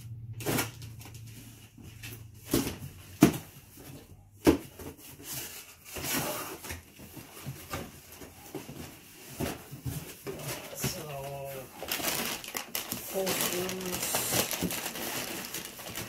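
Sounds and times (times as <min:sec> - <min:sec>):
cardboard flaps rustling: 0:00.4 - 0:16.0.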